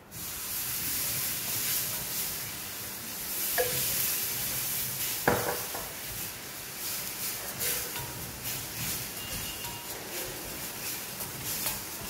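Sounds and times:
milk sizzling in a frying pan: 0:00.0 - 0:12.0
wooden spoon stirring: 0:03.4 - 0:12.0
spoon knocking against pan: 0:03.6 - 0:03.8, 0:05.2 - 0:05.9.

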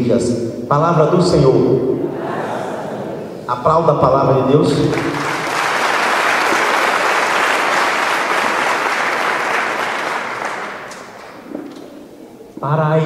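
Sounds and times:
congregation clapping: 0:04.6 - 0:12.3.

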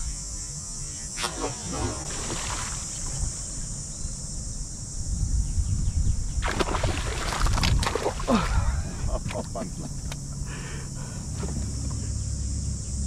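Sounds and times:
fish splashing at water surface: 0:01.2 - 0:03.1, 0:06.4 - 0:08.4
wind rumbling on microphone: 0:01.4 - 0:10.4.

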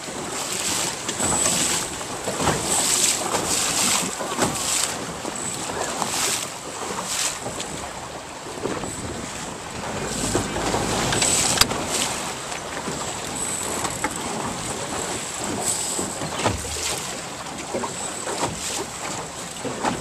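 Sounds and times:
water splashing and lapping: 0:00.0 - 0:20.0
wind on microphone: 0:08.8 - 0:16.2.

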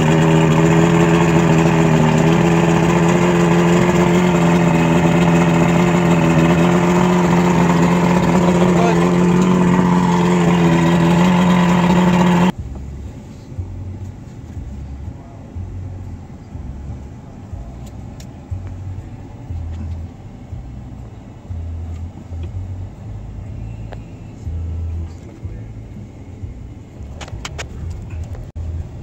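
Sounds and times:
outboard motor running: 0:00.0 - 0:12.6
low uneven rumble: 0:00.0 - 0:29.0.

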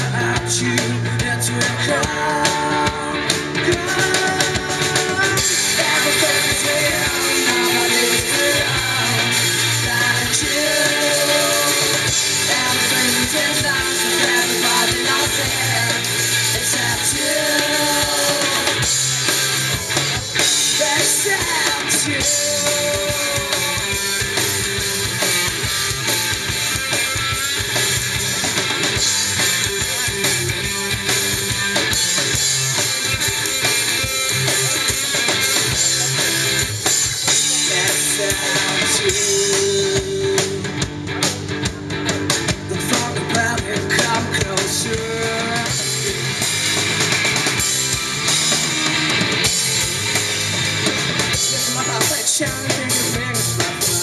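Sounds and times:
person singing: 0:00.0 - 0:19.0, 0:20.6 - 0:25.3, 0:37.3 - 0:40.8, 0:42.6 - 0:46.3, 0:51.4 - 0:54.0
drum kit: 0:00.0 - 0:54.0
electric guitar: 0:00.0 - 0:54.0.

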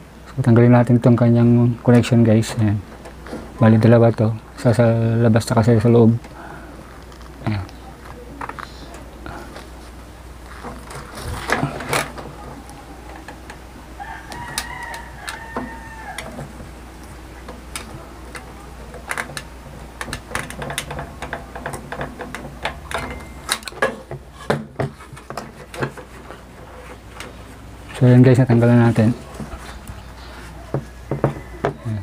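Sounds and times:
rooster crowing: 0:13.8 - 0:16.7, 0:30.3 - 0:32.0
clicks and knocks of connectors: 0:14.3 - 0:26.1.

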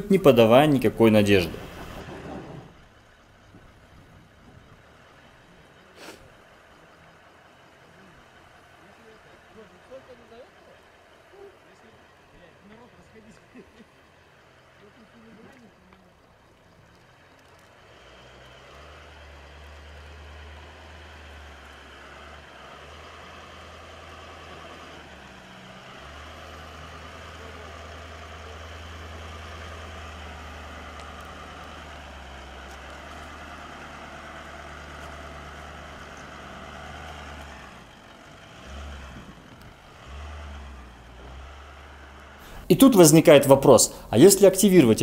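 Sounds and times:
engine running under load: 0:00.0 - 0:45.0
tyres spinning hiss: 0:05.9 - 0:06.6, 0:42.4 - 0:45.0.

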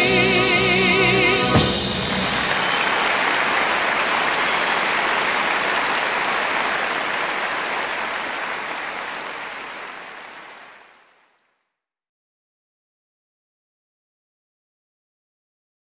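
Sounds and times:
audience applause: 0:01.6 - 0:11.4.

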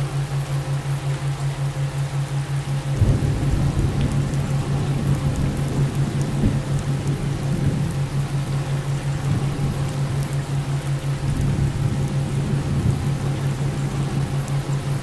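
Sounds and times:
rain: 0:00.0 - 0:15.0
throbbing low hum: 0:00.0 - 0:15.0
rumbling thunder: 0:03.0 - 0:10.2, 0:11.2 - 0:14.4.

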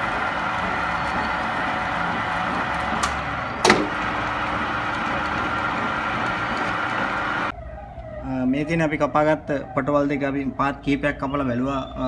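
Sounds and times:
lathe humming and whining: 0:00.0 - 0:07.5.

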